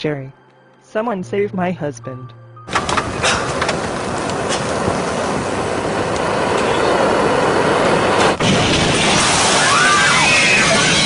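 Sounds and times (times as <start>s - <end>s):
flames burning: 2.7s - 11.0s
fireball erupting: 3.0s - 11.0s.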